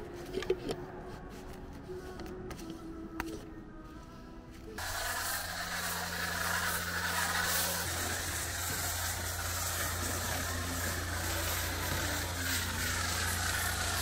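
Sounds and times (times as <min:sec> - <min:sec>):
even hiss: 0:04.8 - 0:14.0
machine humming: 0:04.8 - 0:14.0.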